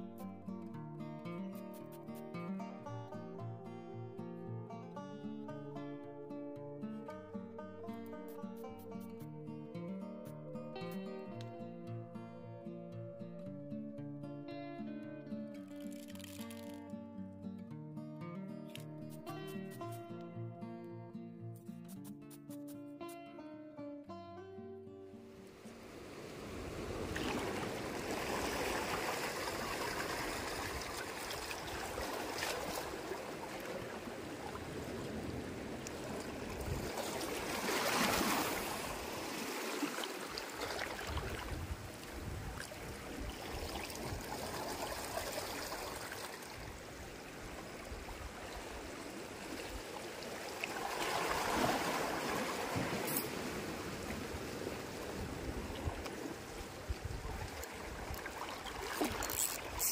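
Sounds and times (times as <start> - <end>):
waves lapping against rocks: 25.5 - 59.9.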